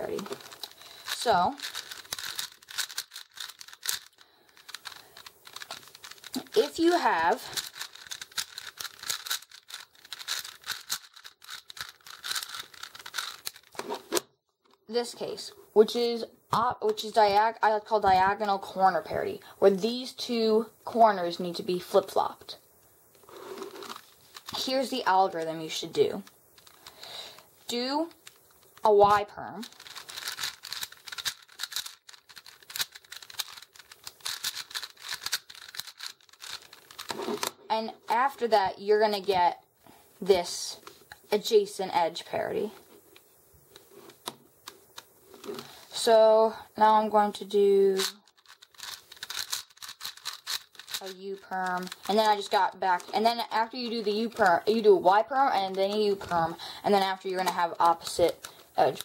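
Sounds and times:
puzzle cube clicking: 0:00.0 - 0:14.2, 0:23.2 - 0:37.9, 0:48.0 - 0:59.0.

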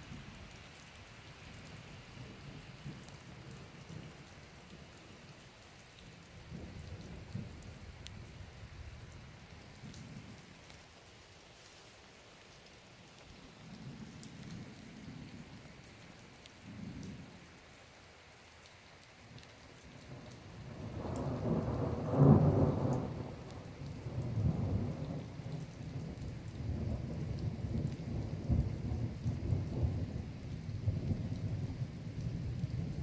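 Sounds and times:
steady rain: 0:00.0 - 0:33.0
thunder rumbling: 0:20.7 - 0:33.0.

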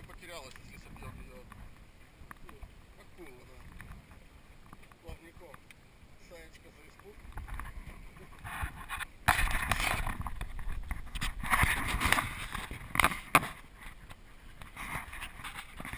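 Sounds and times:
camera handling rubbing: 0:07.3 - 0:15.9.

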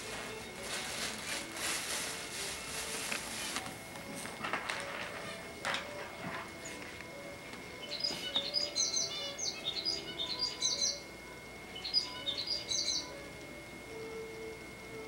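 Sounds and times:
bird chirping and warbling: 0:07.7 - 0:11.1, 0:11.7 - 0:13.2.

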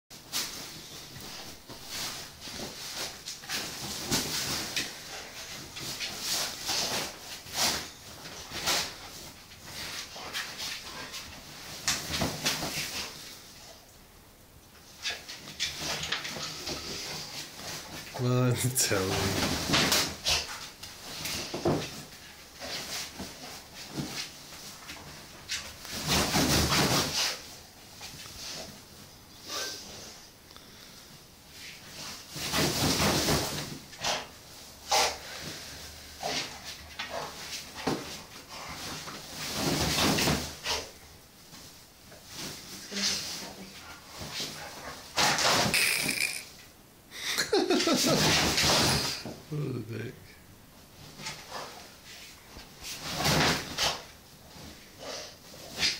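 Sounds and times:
dog rustling and scuffing a cushion: 0:00.2 - 0:13.7, 0:19.4 - 0:29.1, 0:36.2 - 0:45.7.

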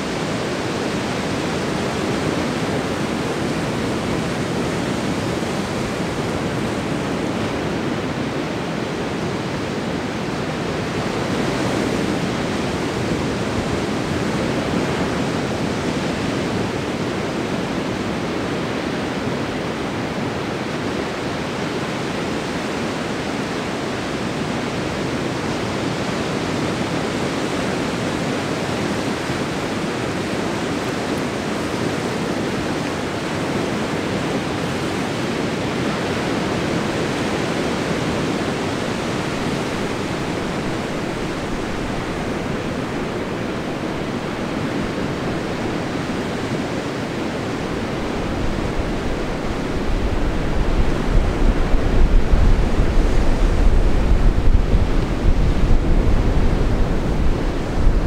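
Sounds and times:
ocean waves breaking: 0:00.0 - 0:58.0.

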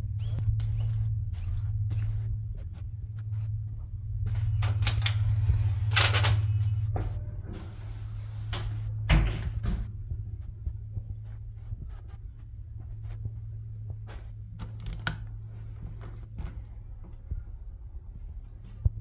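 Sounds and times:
steady low hum: 0:00.0 - 0:19.0
footsteps on tiled floor: 0:09.7 - 0:14.7, 0:15.3 - 0:19.0.

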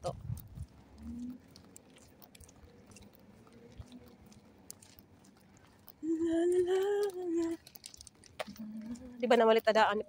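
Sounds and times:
woman humming: 0:06.0 - 0:07.6, 0:08.5 - 0:09.2.

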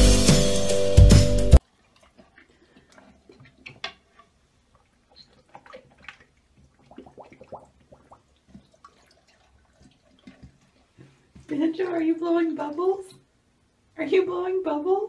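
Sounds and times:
dog blowing bubbles in water: 0:01.7 - 0:11.0.

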